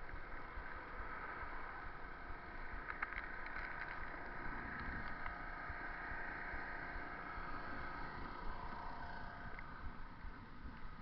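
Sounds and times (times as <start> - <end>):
road noise: 0.0 - 11.0
wind rumbling on microphone: 0.0 - 11.0.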